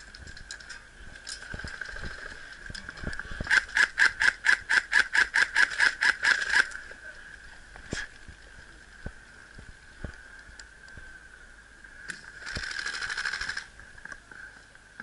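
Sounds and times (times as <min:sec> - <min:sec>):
steady high whine: 0:00.0 - 0:15.0
rapid sharp mechanical clicks: 0:03.4 - 0:06.8, 0:12.4 - 0:13.7.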